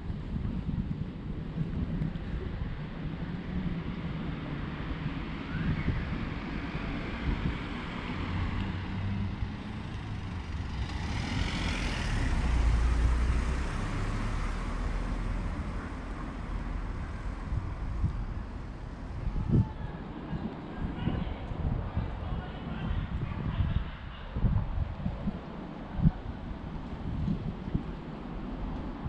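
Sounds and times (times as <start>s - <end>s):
road traffic: 0.0s - 29.0s
vehicle passing close by: 6.7s - 19.6s.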